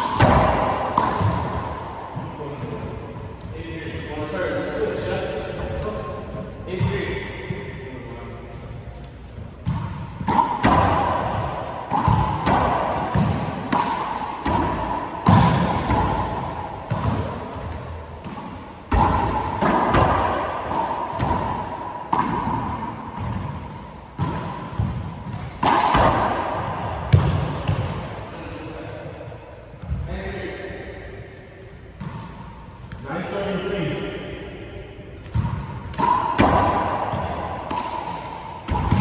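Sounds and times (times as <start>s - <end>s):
rubber ball smacks echoing: 0.0s - 1.6s, 9.6s - 17.4s, 18.2s - 23.5s, 24.1s - 28.0s, 35.2s - 39.0s.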